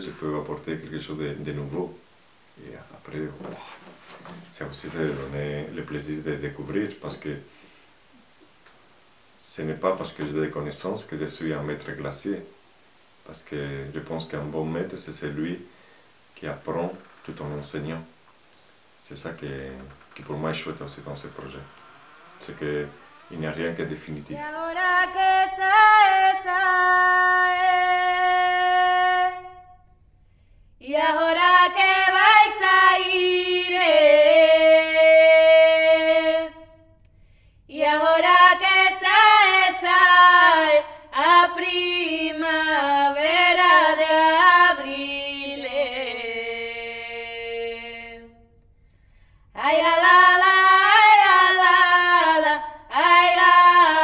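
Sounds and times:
woman singing unaccompanied: 23.9 - 29.8, 30.8 - 36.8, 37.7 - 48.5, 49.6 - 54.0.

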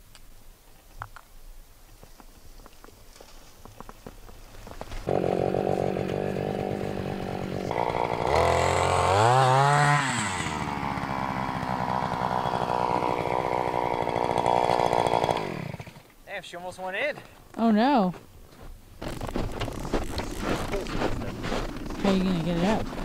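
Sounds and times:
ice auger engine running: 5.0 - 16.1, 19.0 - 23.0.

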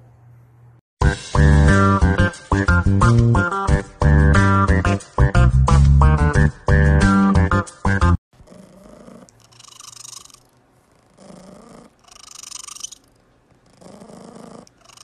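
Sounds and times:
cat purring: 8.4 - 15.0.

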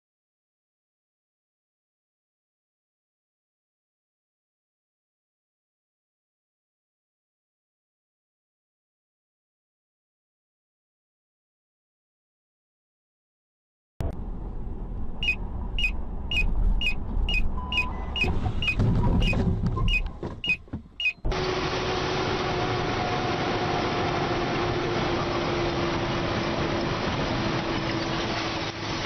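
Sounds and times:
engine and road rumble: 14.0 - 29.0
turn signal ticking: 15.0 - 21.3
tyre and wind noise: 16.4 - 21.0.

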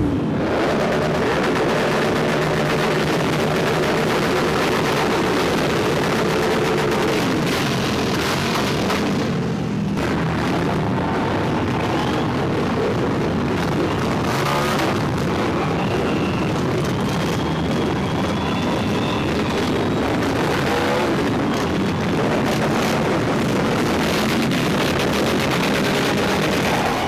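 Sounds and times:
motorcycle engines revving: 0.0 - 27.0
crowd cheering: 11.2 - 12.8, 13.6 - 23.0, 25.2 - 27.0.

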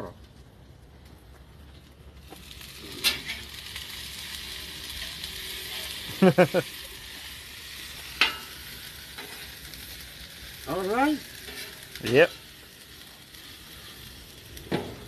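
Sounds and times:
meat sizzling on griddle: 2.2 - 15.0
metal spatula clacking on griddle: 8.2 - 9.4.

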